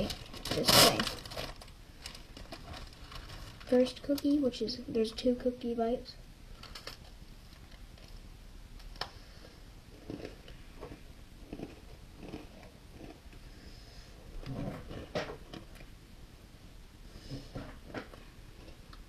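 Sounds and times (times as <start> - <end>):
cookie crunching: 9.9 - 13.5
person chewing: 9.9 - 13.5.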